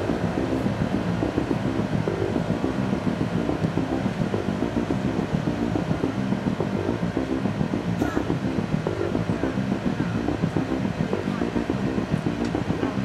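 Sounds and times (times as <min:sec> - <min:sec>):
water pump engine running: 0:00.0 - 0:13.0.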